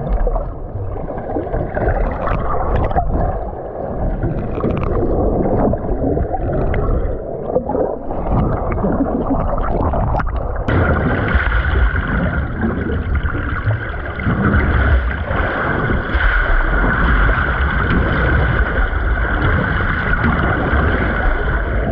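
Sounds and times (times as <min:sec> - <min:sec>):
underwater rumble and gurgling: 0:00.0 - 0:21.9.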